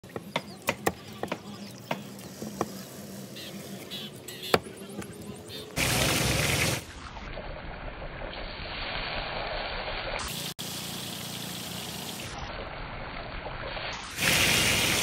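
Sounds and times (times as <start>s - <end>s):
food deep-frying in oil: 5.8s - 15.0s.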